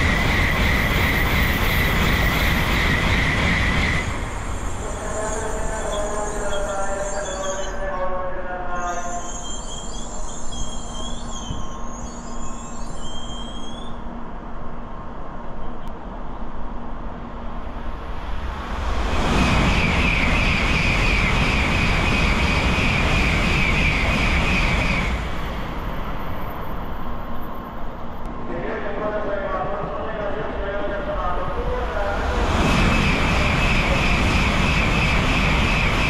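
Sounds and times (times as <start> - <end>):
train passing at high speed: 0.0 - 36.0.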